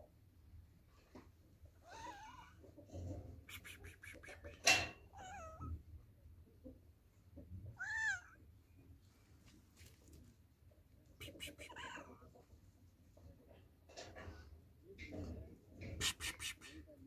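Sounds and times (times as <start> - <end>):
cat meowing: 1.8 - 2.6, 5.1 - 5.8, 7.7 - 8.4.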